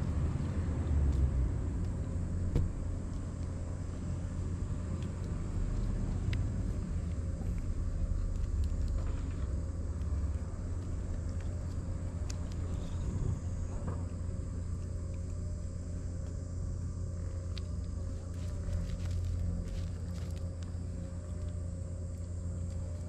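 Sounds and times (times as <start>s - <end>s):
faint ticks: 4.8s - 23.0s.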